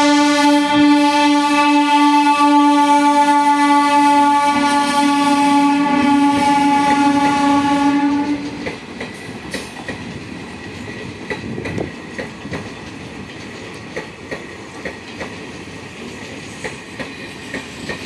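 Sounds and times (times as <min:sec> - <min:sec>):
train horn long blast: 0:00.0 - 0:08.7
train wheels clickety-clack: 0:06.0 - 0:18.0.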